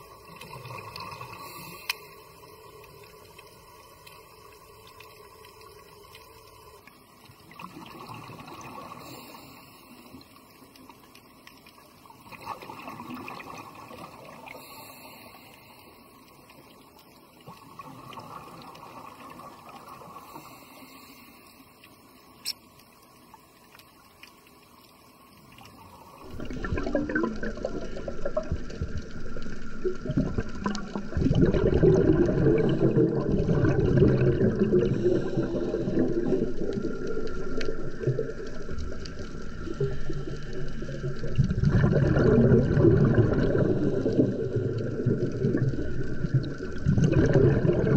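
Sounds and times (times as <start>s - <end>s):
rush of bubbling water: 0.0s - 1.9s, 7.4s - 10.0s, 12.0s - 15.2s, 17.4s - 20.6s, 25.6s - 47.9s
diver's exhaled bubbles: 26.2s - 47.9s.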